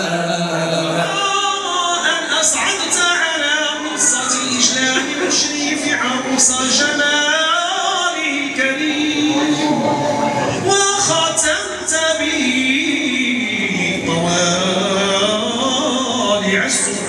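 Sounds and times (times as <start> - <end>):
man singing a cappella: 0.0 - 17.0.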